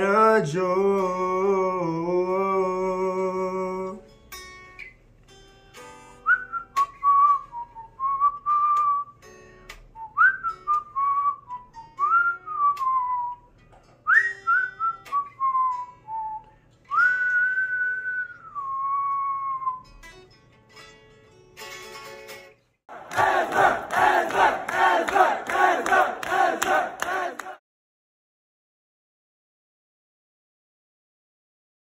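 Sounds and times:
whistled melody: 6.1s - 20.0s.

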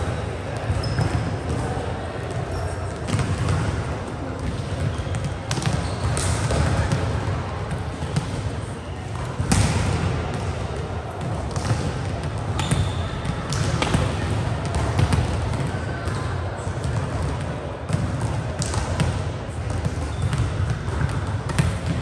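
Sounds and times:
voices in a large hall: 0.0s - 22.0s
volleyballs struck and bouncing: 0.6s - 8.5s, 9.1s - 22.0s.

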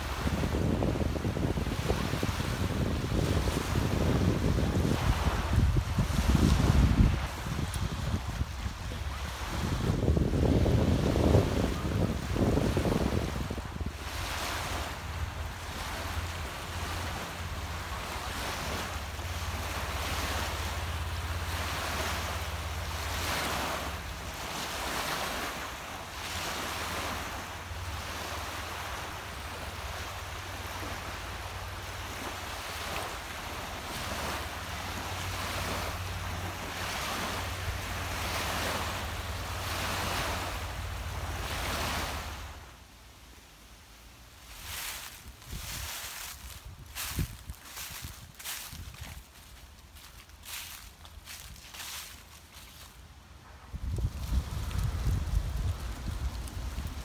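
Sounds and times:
wind buffeting microphone: 0.0s - 25.6s, 44.5s - 49.4s, 53.5s - 57.0s
waves lapping on shore: 0.0s - 57.0s.

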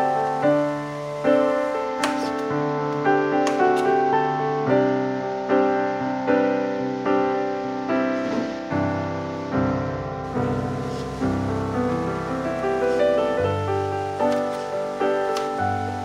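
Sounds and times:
gentle piano music: 0.0s - 16.0s.

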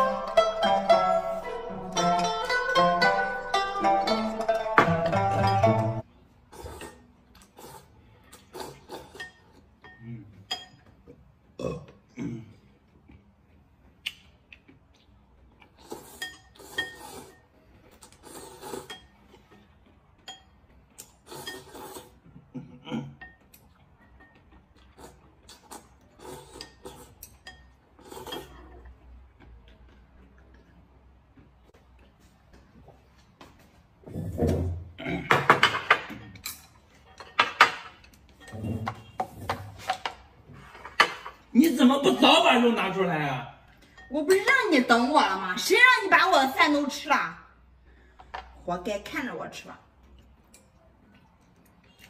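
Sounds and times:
person slurping noodles: 6.5s - 9.2s, 15.7s - 17.4s, 18.0s - 19.0s, 21.2s - 22.2s, 25.0s - 27.2s, 28.0s - 28.8s
plates and chopsticks clinking on glass: 35.3s - 41.5s.

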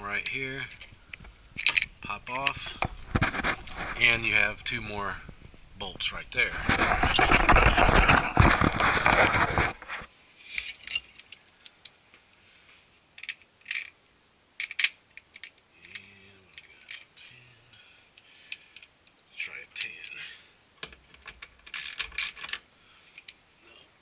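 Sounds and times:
hand tools clinking on bolts: 10.6s - 11.5s.

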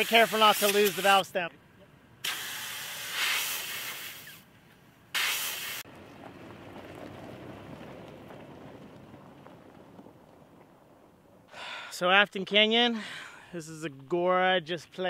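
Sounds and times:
air hissing out of a tyre: 0.0s - 1.3s, 2.2s - 4.5s, 5.1s - 5.9s.

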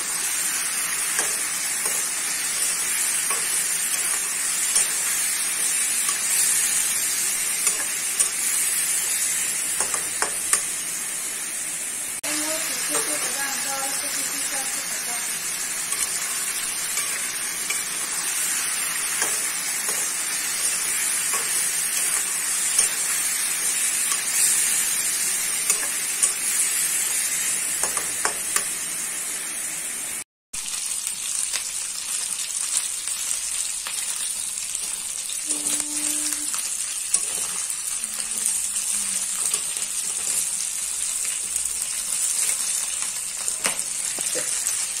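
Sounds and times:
chicken sizzling in hot oil: 0.0s - 45.0s
metal spoon scraping a pan: 0.1s - 10.8s, 15.2s - 28.7s, 37.0s - 37.8s, 39.2s - 40.6s.

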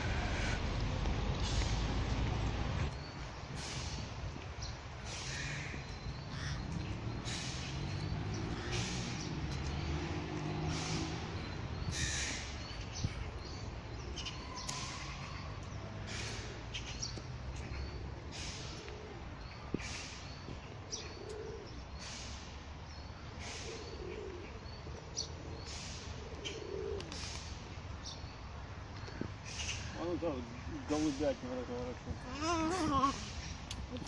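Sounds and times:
footsteps on asphalt: 0.1s - 8.6s, 9.2s - 18.1s, 19.6s - 21.2s, 28.8s - 29.8s
small birds chirping: 1.3s - 34.0s
pigeons cooing: 17.6s - 20.3s, 21.0s - 22.4s, 23.4s - 27.5s, 32.1s - 33.6s.

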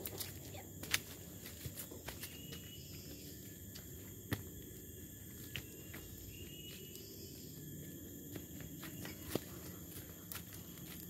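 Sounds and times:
insects buzzing: 0.0s - 11.0s
footsteps crunching on dry leaves: 8.3s - 11.0s.

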